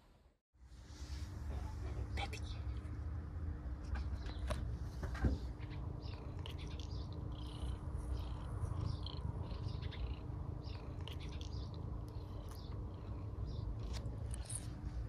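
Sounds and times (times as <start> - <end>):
cat purring: 5.6 - 15.0.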